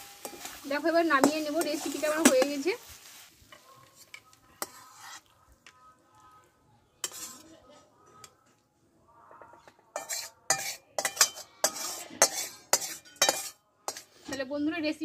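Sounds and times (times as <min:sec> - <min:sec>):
metal spatula scraping metal pan: 0:00.0 - 0:02.8, 0:03.5 - 0:05.4, 0:07.0 - 0:08.4, 0:09.6 - 0:14.5.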